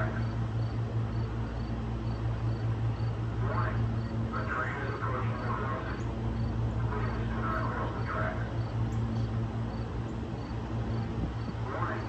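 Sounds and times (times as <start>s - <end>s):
low hum: 0.0s - 12.0s
insect chirping: 0.2s - 3.2s, 4.0s - 4.2s, 9.6s - 11.5s.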